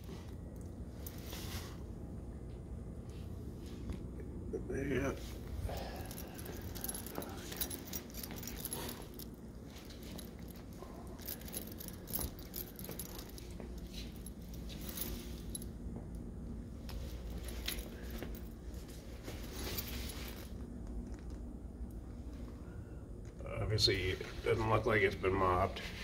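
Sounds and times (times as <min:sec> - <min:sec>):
low steady hum: 0:00.0 - 0:26.0
small metal jingling: 0:05.2 - 0:15.9, 0:16.8 - 0:20.6.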